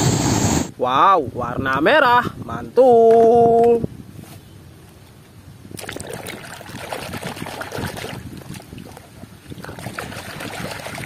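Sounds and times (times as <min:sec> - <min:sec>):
muddy water sloshing and splashing: 0:05.7 - 0:11.0.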